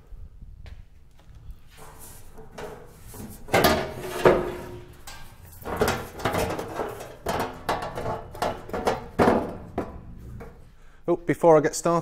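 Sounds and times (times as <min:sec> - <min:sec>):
sheet metal panels clunking: 0:01.8 - 0:10.7.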